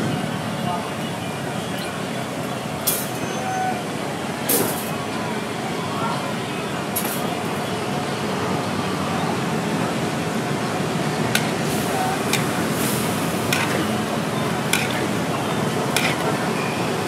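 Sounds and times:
wok sizzling: 0:11.1 - 0:17.0
metal spatula striking wok: 0:13.5 - 0:14.1, 0:14.7 - 0:15.2, 0:16.0 - 0:16.4.

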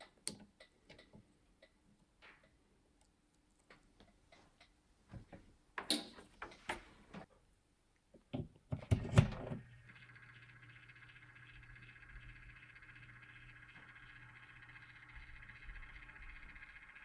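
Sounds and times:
small motor humming: 0:09.5 - 0:17.0.

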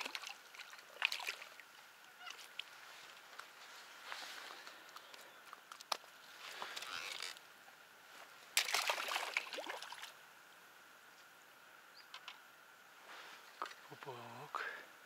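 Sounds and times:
water splashing: 0:00.0 - 0:03.2, 0:08.6 - 0:10.2.

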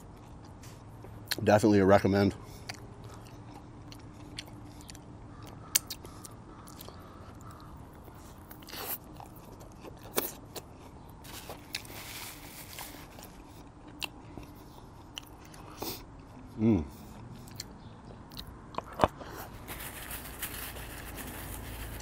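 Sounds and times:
mouth clicks and smacks chewing: 0:02.5 - 0:10.7, 0:13.6 - 0:19.2
chewing crunches: 0:02.5 - 0:22.0.

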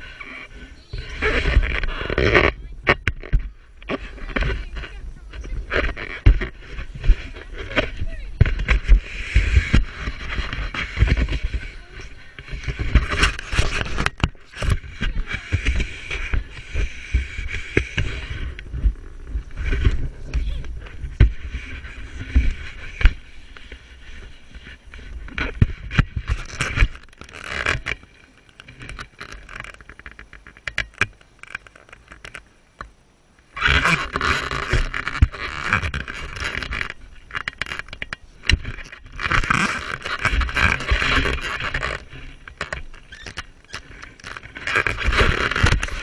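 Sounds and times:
camera handling knocks and scrapes: 0:05.4 - 0:32.9.

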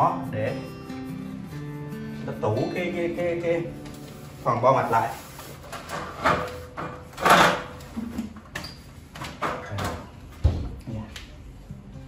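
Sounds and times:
cloth rustling: 0:03.8 - 0:06.8.

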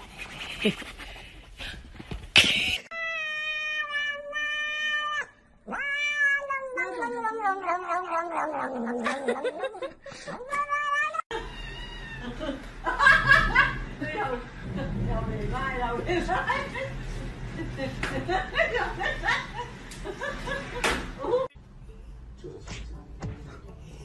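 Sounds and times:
cat yowling: 0:02.9 - 0:09.7, 0:10.3 - 0:12.2.

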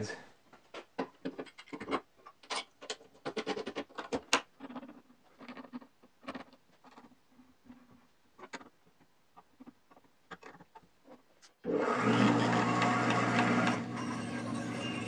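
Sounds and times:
bandsaw humming: 0:11.7 - 0:15.0.

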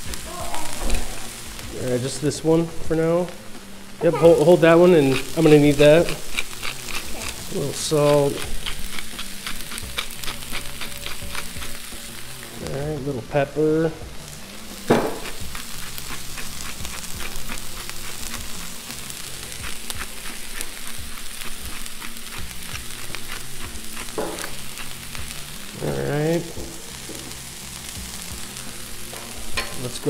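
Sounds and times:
vegetables sizzling on griddle: 0:00.0 - 0:30.0.

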